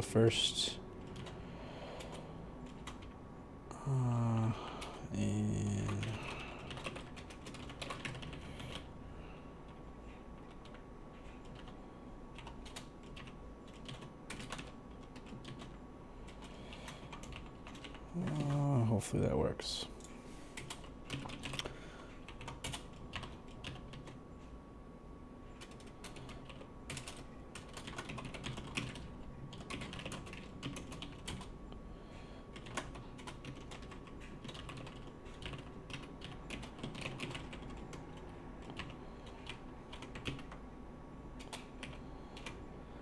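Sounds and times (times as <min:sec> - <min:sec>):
typing on computer keyboard: 0:01.0 - 0:01.4, 0:02.0 - 0:03.2, 0:05.7 - 0:08.9, 0:10.4 - 0:18.7, 0:20.6 - 0:24.2, 0:25.6 - 0:31.5, 0:32.5 - 0:40.6, 0:41.4 - 0:42.6.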